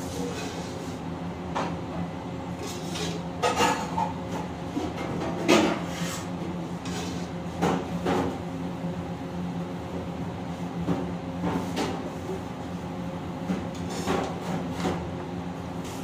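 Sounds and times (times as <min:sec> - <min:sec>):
steady background hum: 0:00.0 - 0:16.0
metal ladle scraping a wok: 0:05.9 - 0:07.3.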